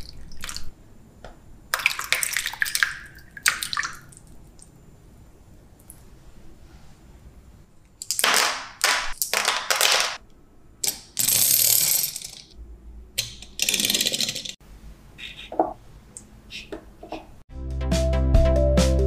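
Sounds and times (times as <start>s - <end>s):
magnetic balls rattling: 13.2s - 14.6s.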